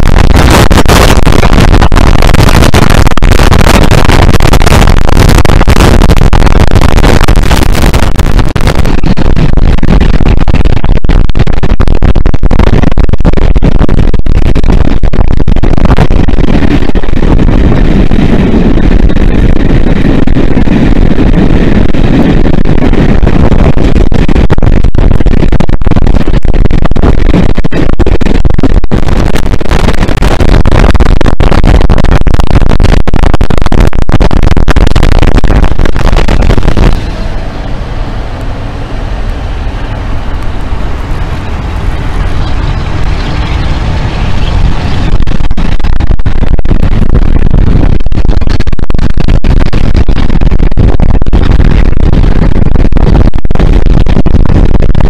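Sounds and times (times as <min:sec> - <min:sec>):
wind rush on microphone: 0:00.0 - 0:55.0
diesel locomotive engines working hard: 0:36.9 - 0:45.1.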